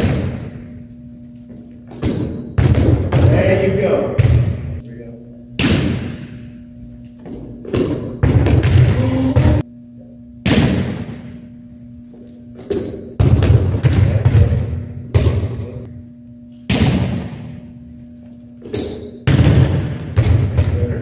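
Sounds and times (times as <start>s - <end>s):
volleyballs thudding on gym floor: 0.0s - 0.7s, 1.9s - 3.6s, 4.2s - 4.7s, 5.6s - 6.4s, 7.2s - 9.6s, 10.4s - 11.4s, 12.6s - 15.7s, 16.7s - 17.6s, 18.6s - 21.0s
shoe squeaks: 1.4s - 2.6s, 7.6s - 8.2s, 12.6s - 13.2s, 18.5s - 19.2s.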